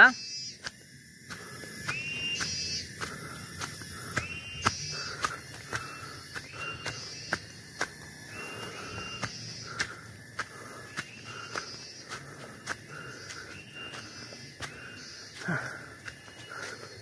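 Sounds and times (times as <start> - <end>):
insects buzzing: 0.0 - 17.0
bird whistling: 0.2 - 0.6, 1.8 - 2.9, 4.1 - 7.6, 8.3 - 9.8, 13.5 - 15.4.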